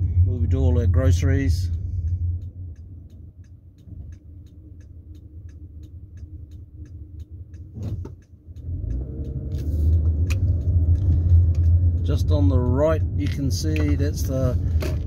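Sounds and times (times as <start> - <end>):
car engine idling: 0.0 - 15.0
turn signal ticking: 0.0 - 15.0.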